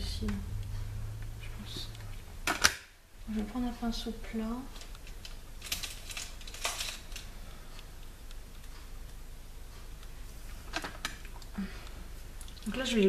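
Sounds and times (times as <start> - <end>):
low steady hum: 0.0 - 13.0
make-up kit clicks and rustles: 4.7 - 8.7.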